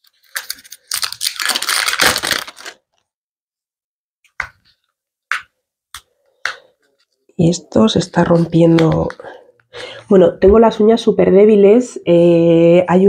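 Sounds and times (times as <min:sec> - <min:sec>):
packaging crackling: 0:00.0 - 0:03.0.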